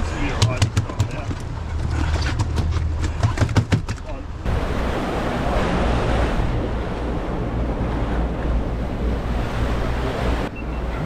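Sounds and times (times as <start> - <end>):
boat wake rushing: 0.0 - 11.0
low rumble: 4.3 - 10.4
wind buffeting microphone: 4.3 - 11.0.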